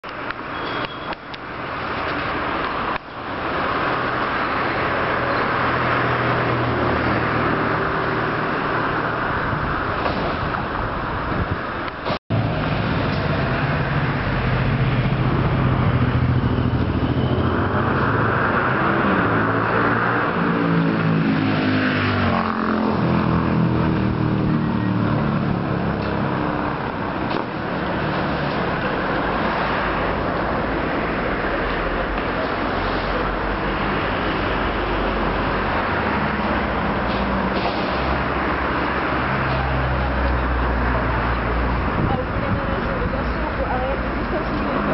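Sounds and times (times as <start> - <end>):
traffic noise: 0.0 - 44.9
vehicle passing by: 12.3 - 44.9.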